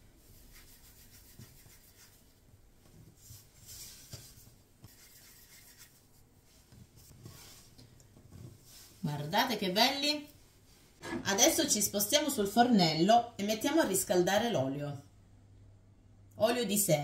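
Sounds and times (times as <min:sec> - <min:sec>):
hands rolling dough on wood: 0:00.2 - 0:09.0.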